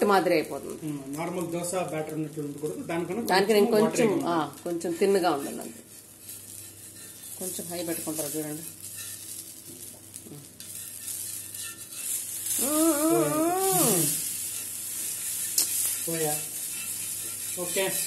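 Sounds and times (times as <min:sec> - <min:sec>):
batter sizzling on a griddle: 0:00.0 - 0:18.0
spatula scraping: 0:04.8 - 0:09.7, 0:10.4 - 0:18.0
person's wavering voice: 0:12.6 - 0:14.2.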